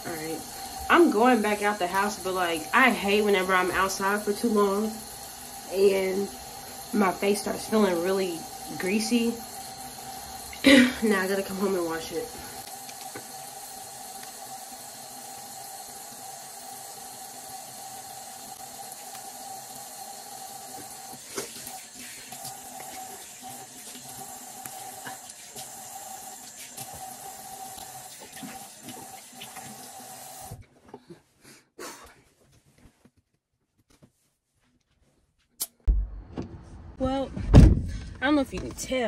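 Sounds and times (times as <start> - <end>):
sink tap running: 0.0 - 30.6.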